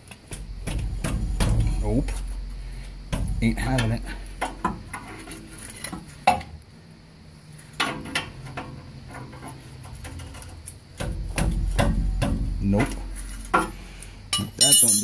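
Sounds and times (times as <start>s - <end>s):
wrench clinking on metal: 14.3s - 15.0s.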